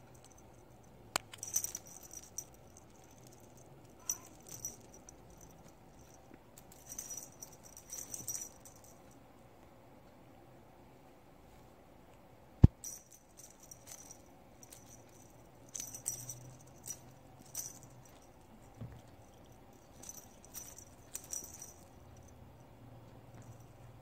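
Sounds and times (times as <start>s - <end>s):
small bells jingling on a toy: 0.0s - 9.2s, 12.8s - 22.4s.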